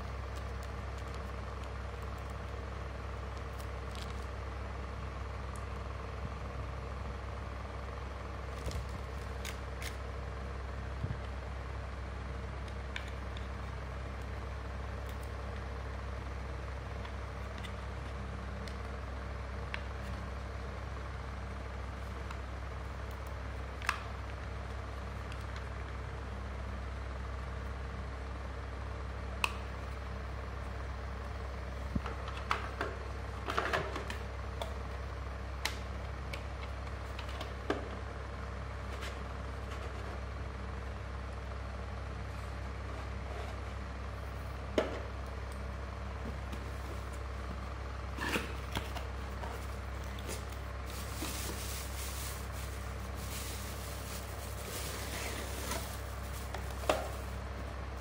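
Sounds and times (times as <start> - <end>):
low machinery hum: 0.0 - 58.0.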